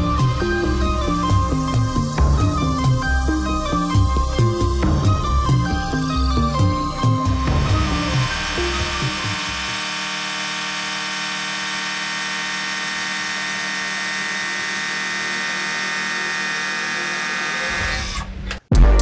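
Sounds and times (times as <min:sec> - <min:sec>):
lathe cutting with steady whine: 0:07.3 - 0:18.2.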